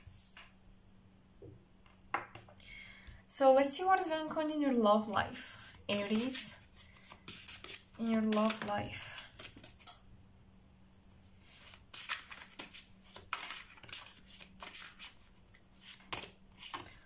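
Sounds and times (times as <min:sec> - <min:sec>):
cards being shuffled: 0:05.7 - 0:09.9, 0:11.5 - 0:15.2, 0:15.8 - 0:17.0.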